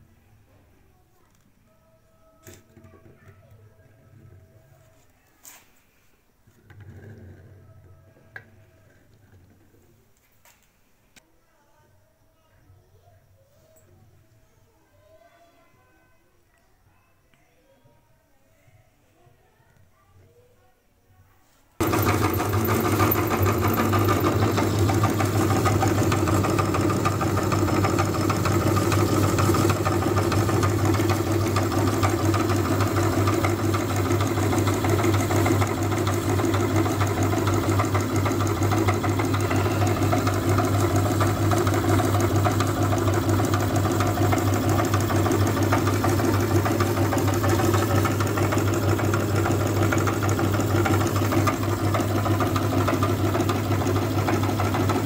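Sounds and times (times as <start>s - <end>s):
meat grinder motor humming: 21.8s - 55.0s.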